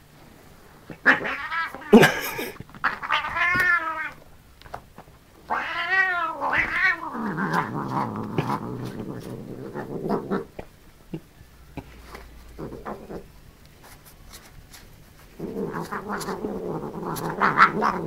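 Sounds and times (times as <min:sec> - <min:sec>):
cat rolling on cushion: 0:06.4 - 0:10.6, 0:11.8 - 0:18.0.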